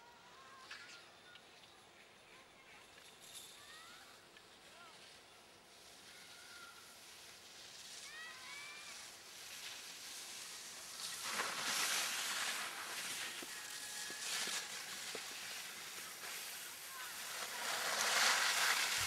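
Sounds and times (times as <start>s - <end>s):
skis sliding on snow: 2.3s - 19.0s.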